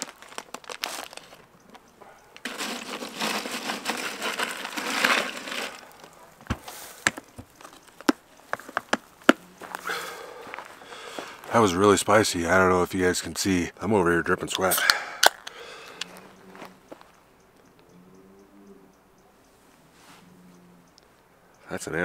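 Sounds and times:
hand digging through cooler: 2.4 - 7.8
drink can handled: 2.4 - 9.0.

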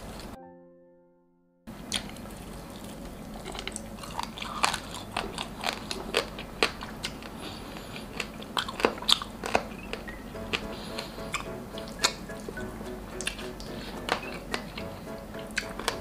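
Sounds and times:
chewing meat: 1.9 - 12.2, 13.2 - 14.9.

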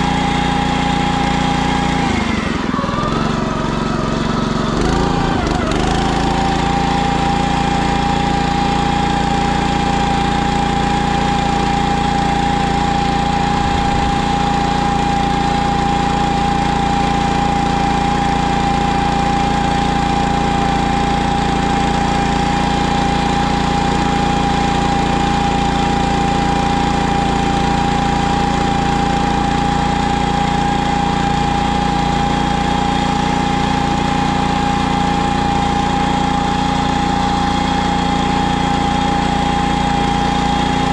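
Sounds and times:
ride-on sprayer engine running: 0.0 - 40.9
steady whine: 13.5 - 14.8.

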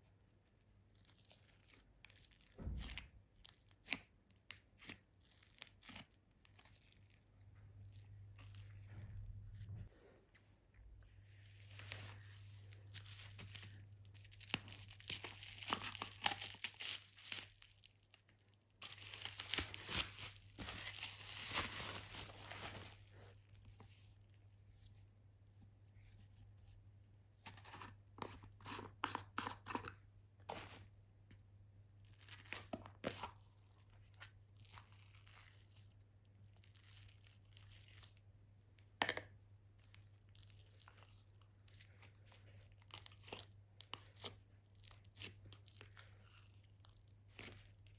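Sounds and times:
bubble wrap crinkling and tearing: 0.8 - 9.3, 11.3 - 24.8, 32.0 - 38.3, 39.7 - 47.9
slime squishing: 39.7 - 47.9.

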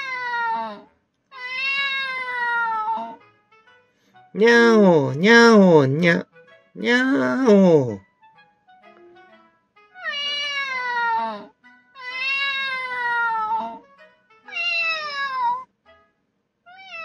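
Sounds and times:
cat meows through speaker: 1.4 - 3.2, 4.4 - 6.2, 10.0 - 13.8, 14.5 - 15.6, 16.7 - 17.0.

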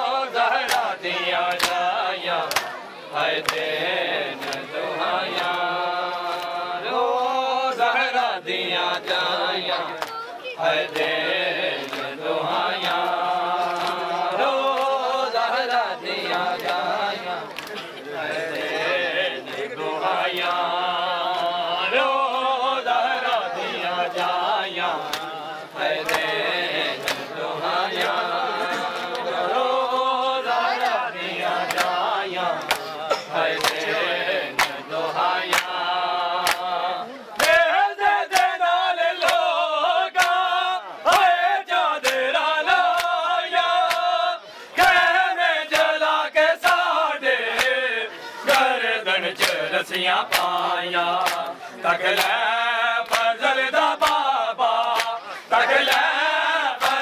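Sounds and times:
men chanting in unison: 0.0 - 57.0
hands slapping chests: 0.6 - 0.9, 1.5 - 2.8, 3.4 - 3.7, 4.4 - 4.7, 12.8 - 15.0, 25.0 - 26.4, 27.0 - 27.3, 31.6 - 32.0, 32.6 - 33.9, 34.5 - 34.8, 35.5 - 36.8, 37.4 - 37.7, 39.2 - 39.5, 40.2 - 40.5, 42.0 - 43.2, 43.8 - 44.1, 45.7 - 46.0, 46.6 - 46.9, 47.5 - 47.8, 49.4 - 51.5, 52.1 - 52.4, 53.0 - 53.4, 54.0 - 54.3, 54.9 - 55.2, 56.8 - 57.0.

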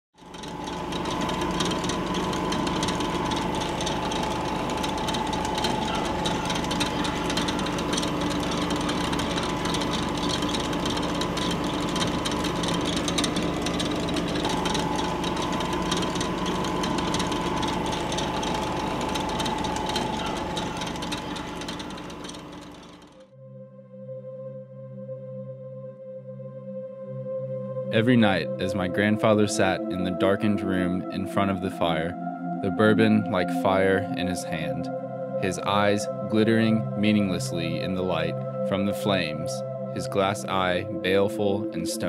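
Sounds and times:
film projector clattering: 0.2 - 23.2
projector hum: 0.2 - 23.2.

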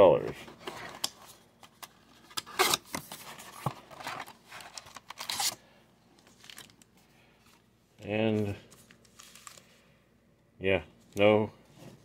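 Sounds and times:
card packs rustling: 0.4 - 9.9.

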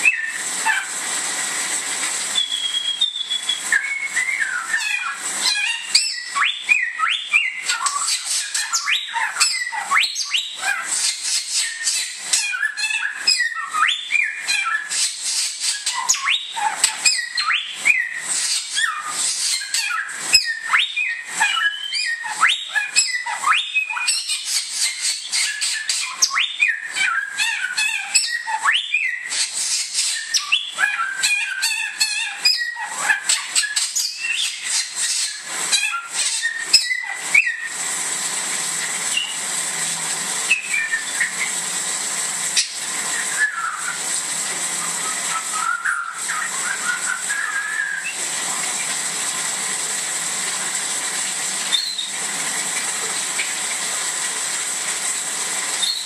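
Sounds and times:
bird singing whistled phrases: 0.0 - 0.8, 2.3 - 15.1, 15.7 - 37.8, 39.1 - 39.4, 40.5 - 41.5, 42.6 - 44.0, 44.8 - 48.2, 51.7 - 52.1, 55.8 - 56.0
steady hiss with high whine: 0.0 - 27.4, 28.1 - 31.3, 33.4 - 56.0.

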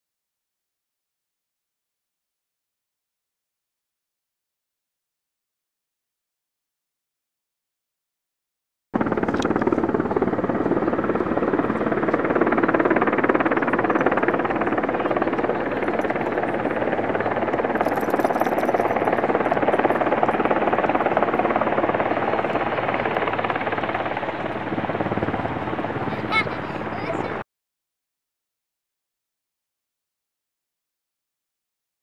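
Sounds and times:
helicopter rotor blade chop: 9.0 - 27.4.

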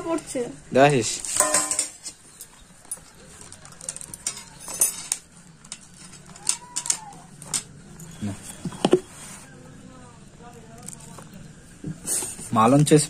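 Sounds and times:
forks clinking on plate: 1.4 - 3.1, 3.8 - 8.2.

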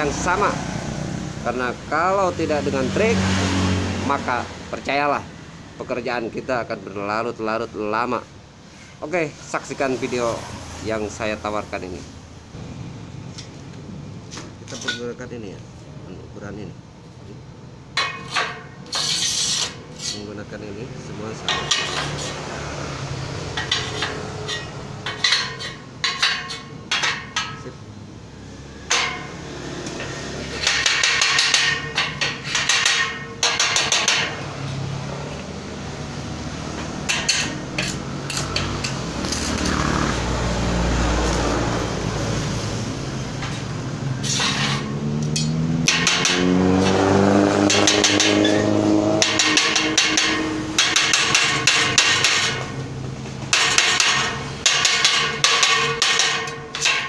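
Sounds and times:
steel tubes clanking: 17.9 - 20.5, 21.3 - 22.5, 23.5 - 27.8, 28.8 - 34.9, 36.8 - 40.2, 42.3 - 57.0
engine running: 27.9 - 57.0.

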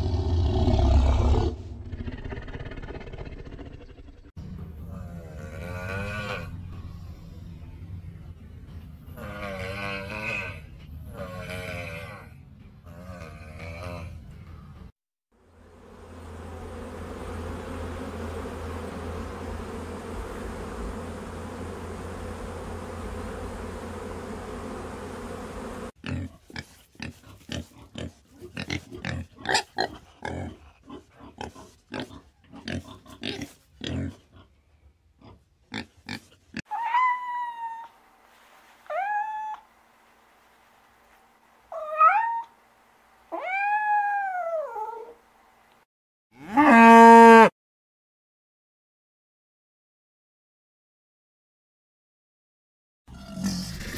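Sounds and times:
irregular animal noises: 0.0 - 14.9, 15.5 - 45.8
steady buzzing hum: 15.4 - 26.0.

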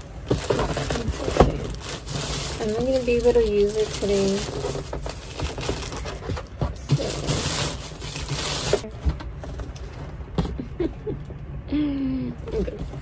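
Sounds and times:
packaging rustling: 0.0 - 10.0.

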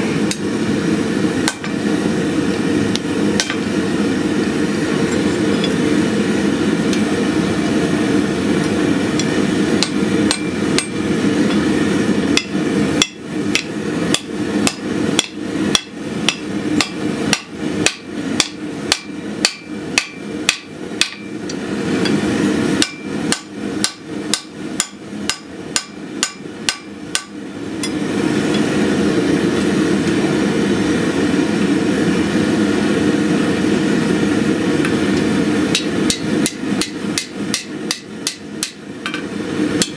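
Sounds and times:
hammer ringing on anvil: 9.8 - 11.0.

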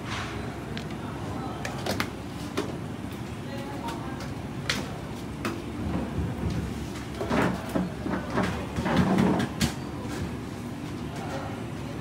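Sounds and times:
low background hum: 0.0 - 12.0
knocks and clatter on metal counter: 7.2 - 9.8.

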